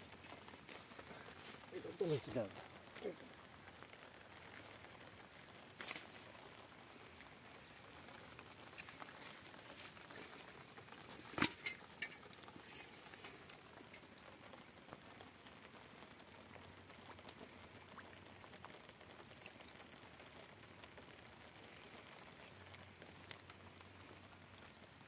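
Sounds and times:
rain pattering on leaves and water: 0.0 - 25.0.

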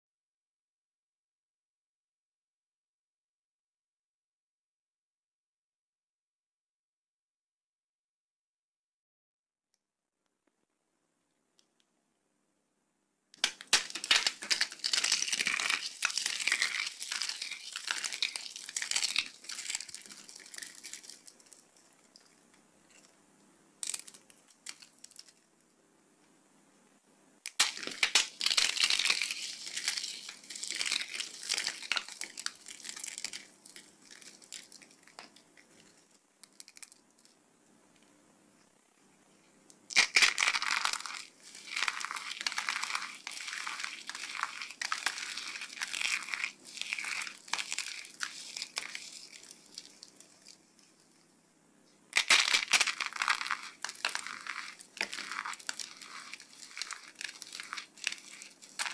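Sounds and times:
soap crackling crushed by fingers: 13.4 - 23.1, 23.8 - 25.4, 27.5 - 37.4, 39.8 - 51.0, 52.1 - 58.9.

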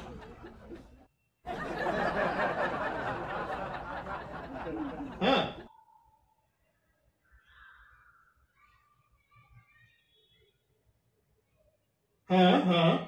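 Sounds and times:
indistinct chatter: 0.0 - 5.7
people chuckling: 0.0 - 5.7.

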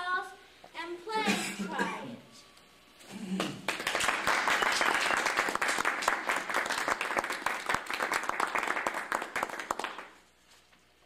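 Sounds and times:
audience applauding: 3.6 - 10.2.

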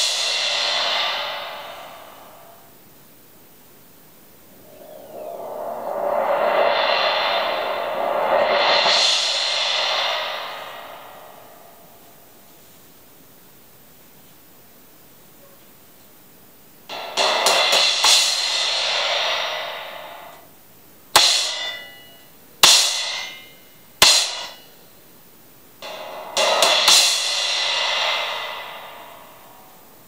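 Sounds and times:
trashy crash cymbal strikes: 0.0 - 2.8, 4.5 - 12.4, 16.9 - 20.4, 25.8 - 30.0.

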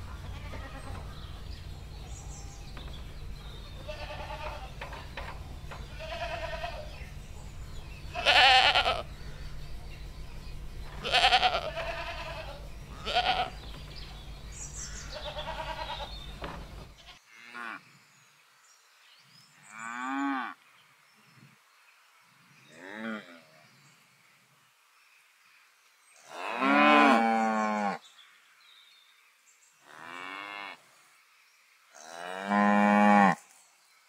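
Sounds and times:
goats bleating: 0.2 - 1.1, 3.7 - 4.8, 5.8 - 6.9, 8.1 - 9.1, 11.0 - 13.6, 15.2 - 16.1.

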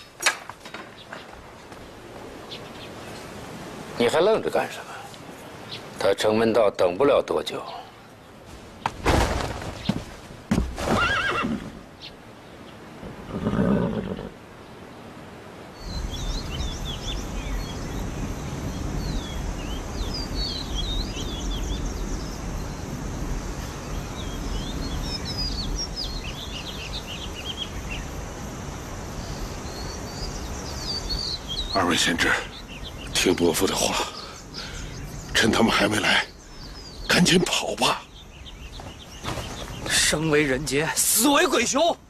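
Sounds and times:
outdoor background noise: 0.0 - 42.0
sharp knocks: 8.8 - 11.0
horse whinnying: 10.8 - 11.8, 13.3 - 14.4.

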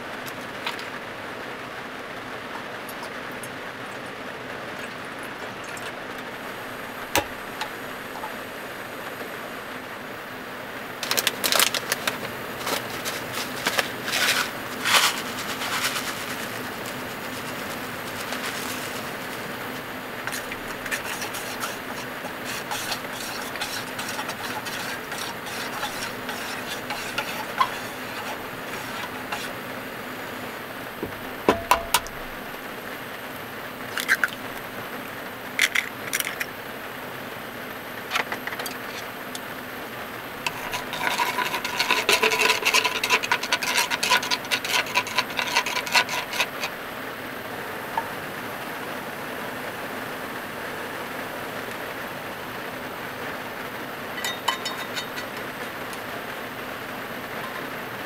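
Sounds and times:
gas burner running: 5.9 - 58.0
plastic packet crinkling: 11.0 - 22.3.

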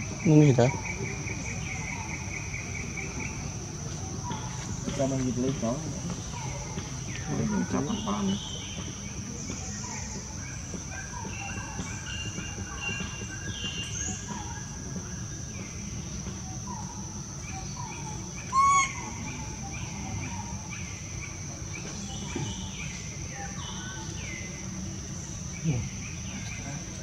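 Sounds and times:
small birds chirping: 0.0 - 27.0
loud pitched bird call: 17.5 - 20.6.

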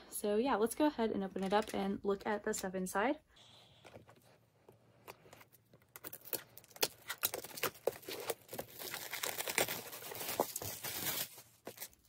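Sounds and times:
shrink wrap crinkling and tearing: 5.0 - 12.0.

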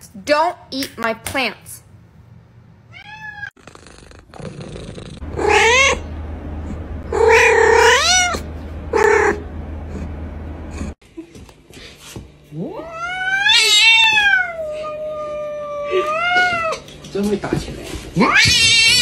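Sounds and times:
cat meowing: 2.9 - 3.5, 5.4 - 6.0, 7.1 - 8.4, 12.8 - 16.8, 18.2 - 19.0
cat yowling: 2.9 - 3.6, 5.3 - 6.1, 7.1 - 9.4, 12.8 - 16.8, 18.2 - 19.0.

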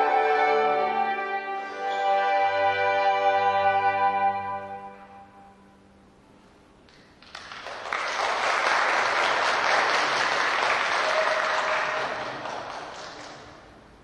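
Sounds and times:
audience applause: 7.2 - 13.6.

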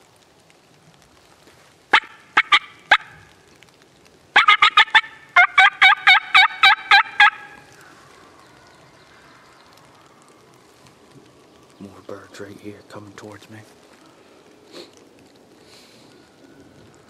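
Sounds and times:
turkey call clucks: 1.9 - 3.3, 4.4 - 7.6
turkey call yelps: 1.9 - 3.3, 4.4 - 7.7.

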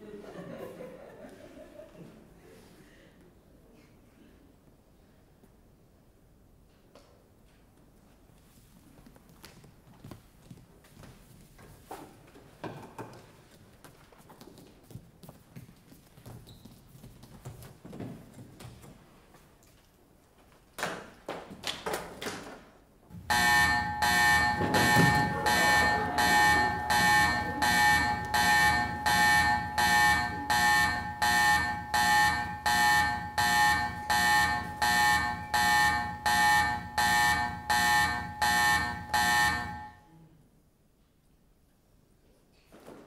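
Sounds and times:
pulsing electronic buzzing alarm: 23.2 - 40.0.

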